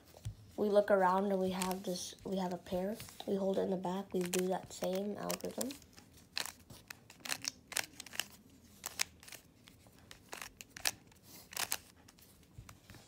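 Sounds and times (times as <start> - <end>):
puzzle cube plastic clicks: 4.1 - 12.2.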